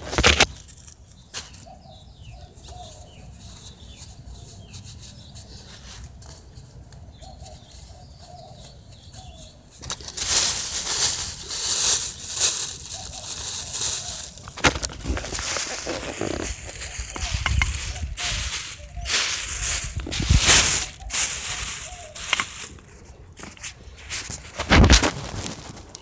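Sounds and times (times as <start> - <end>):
phone microphone handling noise: 14.5 - 18.4.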